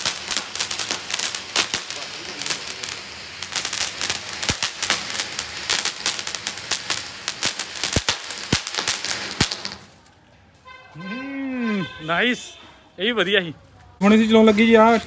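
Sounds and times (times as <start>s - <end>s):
firework fountain hissing: 0.0s - 10.1s
sharp firework cracks and pops: 0.0s - 10.2s.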